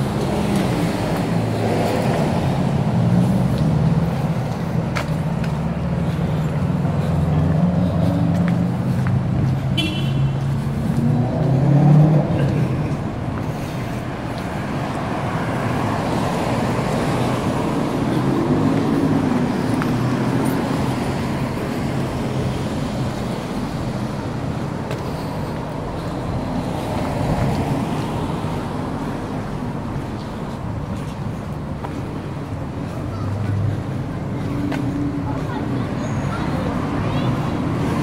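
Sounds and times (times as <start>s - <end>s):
city street traffic: 0.0s - 38.0s.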